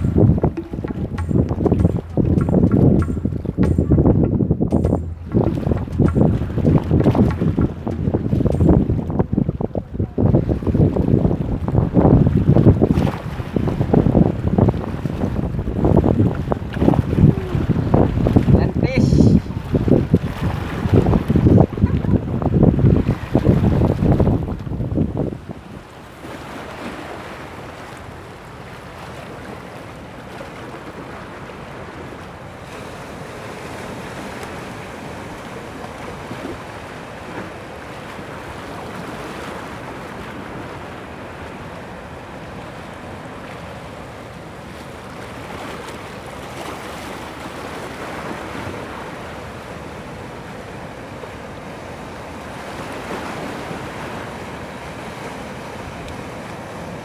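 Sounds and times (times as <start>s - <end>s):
wind on microphone: 0.0s - 43.8s
surf breaking on rocks: 0.0s - 50.5s.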